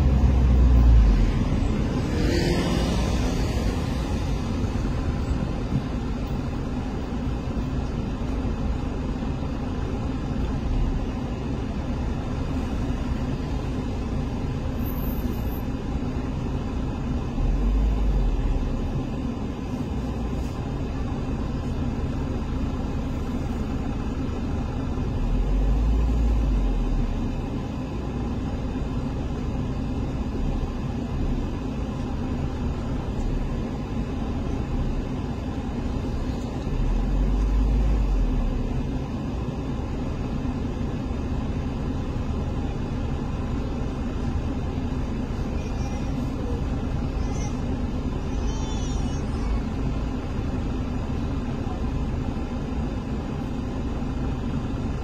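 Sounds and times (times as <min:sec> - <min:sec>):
city street traffic rumble: 0:00.0 - 0:55.0.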